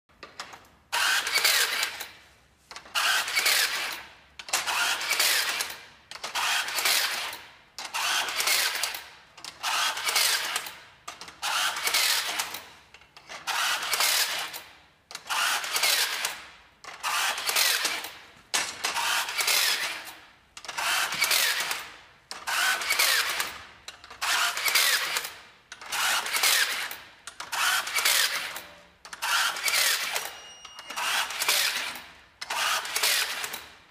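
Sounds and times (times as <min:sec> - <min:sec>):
rebar tying machine motor bursts: 0:19.0 - 0:23.6, 0:24.2 - 0:33.6.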